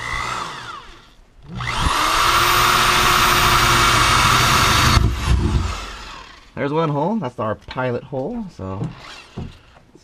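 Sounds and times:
cordless drill whining: 0.0 - 6.5, 8.8 - 9.8.

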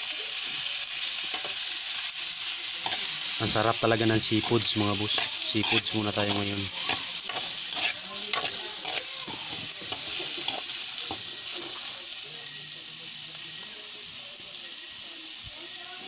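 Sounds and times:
seafood sizzling in hot oil: 0.0 - 16.0
metal spatula scraping wok: 2.8 - 11.9.

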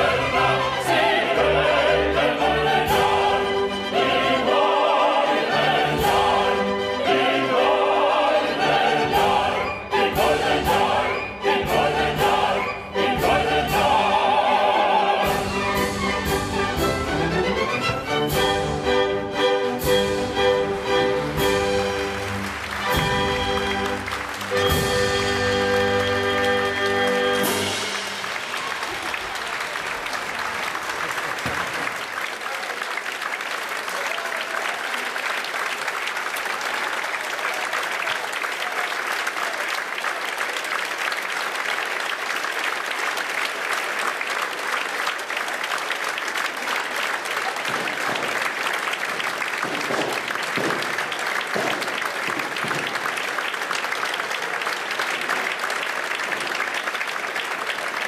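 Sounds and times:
audience applauding: 0.0 - 58.0
people cheering: 21.8 - 58.0.

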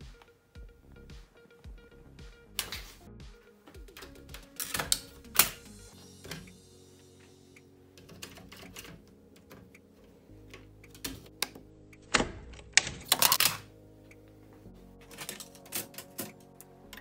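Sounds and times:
plastic cassette door clicking: 12.1 - 13.7.

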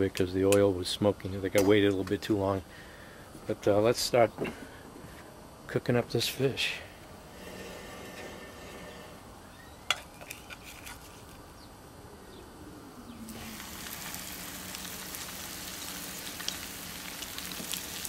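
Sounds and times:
fish sizzling in hot oil: 13.3 - 18.0.

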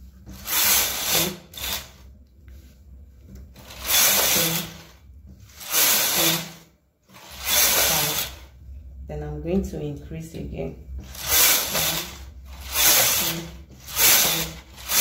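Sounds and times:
knitting machine carriage rasping: 0.3 - 2.1, 3.6 - 8.5, 11.0 - 15.0.

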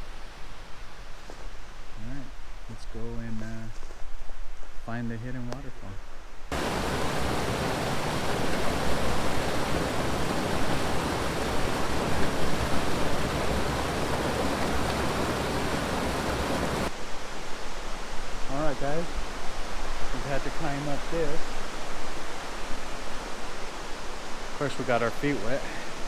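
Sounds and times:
rushing water: 6.5 - 26.0.

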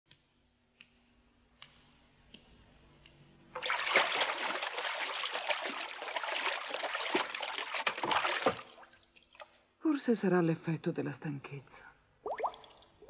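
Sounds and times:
water sloshing in bathtub: 3.5 - 9.7, 12.2 - 13.0.

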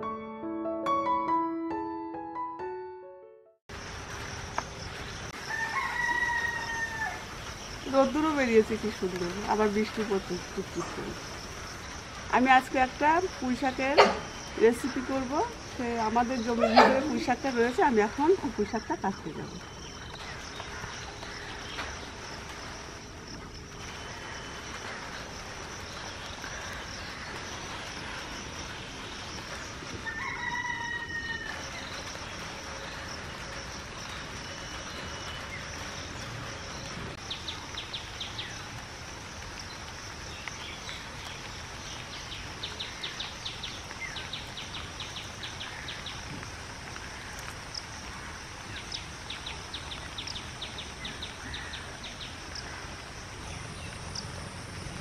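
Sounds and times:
rooster crowing: 5.4 - 7.3, 30.0 - 31.8.

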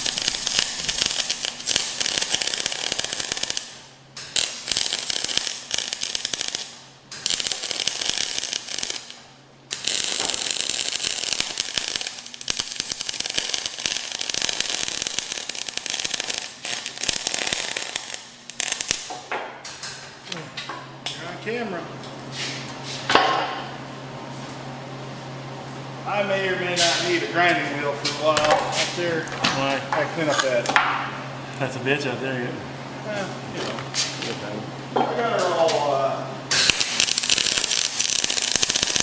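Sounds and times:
welding arc crackling: 0.0 - 19.9, 36.5 - 39.0.

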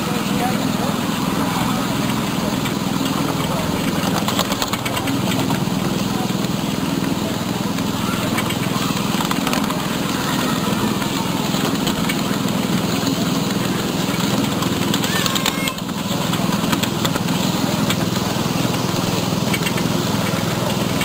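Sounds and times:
miniature train running on track: 0.0 - 21.0.

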